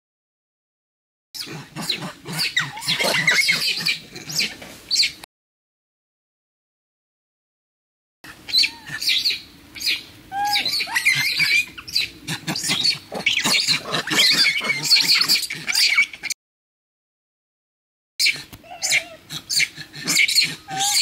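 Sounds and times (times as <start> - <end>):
monkeys screaming and squealing: 1.4 - 5.2, 8.3 - 16.4, 18.2 - 21.0.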